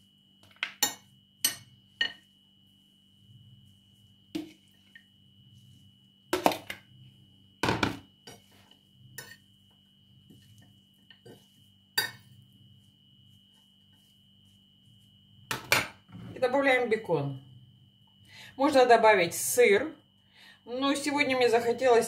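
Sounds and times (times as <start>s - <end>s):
metal spoon clinking on dishes: 0.6s - 2.2s, 12.0s - 12.3s.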